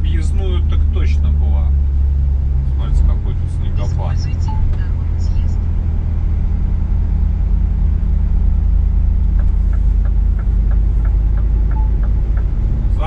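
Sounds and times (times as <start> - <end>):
truck diesel engine rumble: 0.0 - 13.0
turn signal ticking: 7.2 - 13.0.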